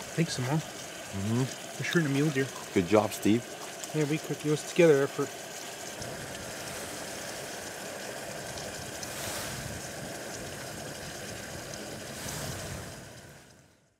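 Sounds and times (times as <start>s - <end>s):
steady rushing noise: 6.0s - 13.5s.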